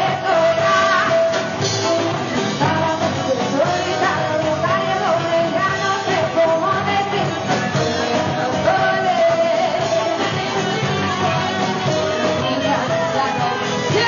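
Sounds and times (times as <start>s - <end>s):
bass guitar: 0.0s - 14.0s
drums: 0.0s - 14.0s
electric guitar: 0.0s - 14.0s
woman singing: 0.0s - 14.0s.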